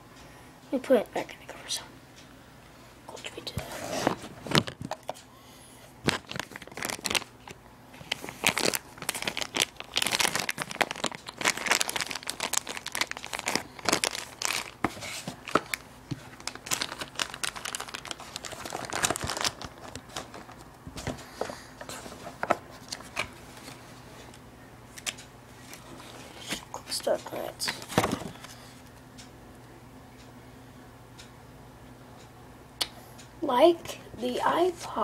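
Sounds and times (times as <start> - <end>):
plastic packaging crinkling: 6.0 - 21.2.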